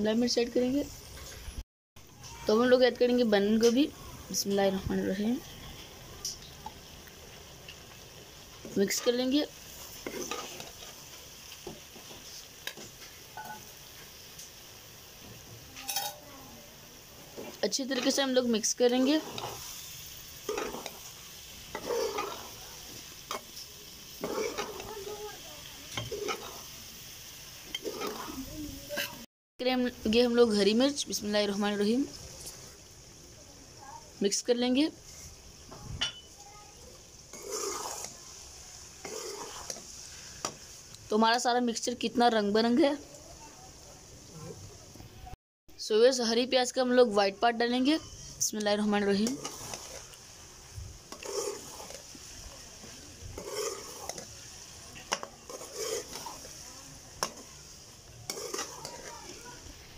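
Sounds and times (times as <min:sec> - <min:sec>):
food sizzling in a metal pan: 0:00.0 - 0:59.9
metal spoon scraping pan: 0:08.6 - 0:13.7, 0:15.8 - 0:16.2, 0:17.4 - 0:26.7, 0:27.7 - 0:29.2, 0:37.3 - 0:38.4, 0:39.0 - 0:40.6, 0:47.8 - 0:50.2, 0:51.1 - 0:59.6.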